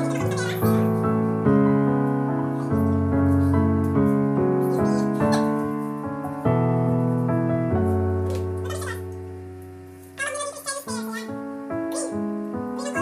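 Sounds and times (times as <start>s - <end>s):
slow music chords: 0.0s - 10.1s.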